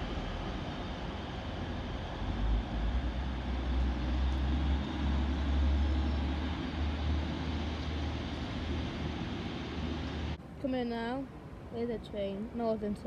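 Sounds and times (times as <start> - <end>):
train pulling out rumbling: 0.0 - 10.4.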